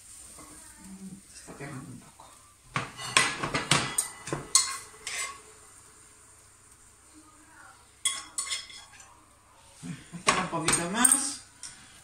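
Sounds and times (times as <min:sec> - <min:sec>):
kitchen utensils clinking on pan: 0:02.7 - 0:05.4, 0:08.0 - 0:09.2, 0:10.2 - 0:11.8.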